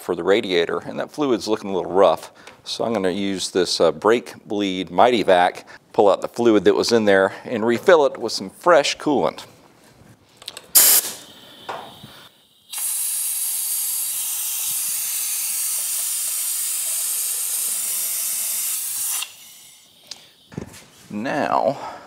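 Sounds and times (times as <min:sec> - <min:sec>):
air hose coupler click: 0:10.4 - 0:13.5
compressed air hissing: 0:10.7 - 0:22.0.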